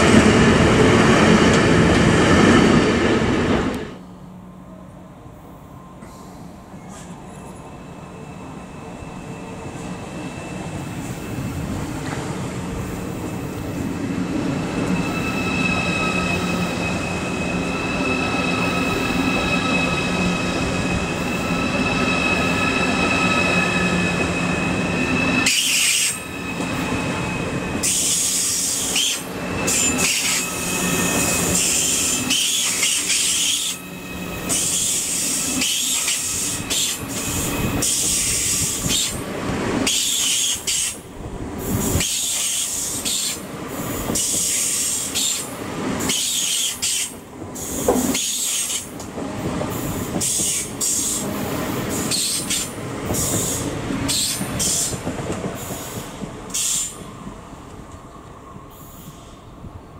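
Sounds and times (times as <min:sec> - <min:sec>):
electric train whine: 0:00.0 - 0:59.9
train passing at speed: 0:00.0 - 0:59.9.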